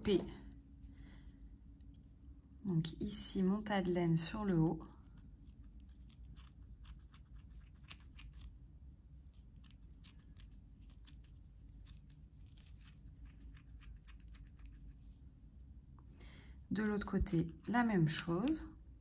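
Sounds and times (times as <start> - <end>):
scissors snipping yarn: 4.4 - 8.6, 17.2 - 18.8.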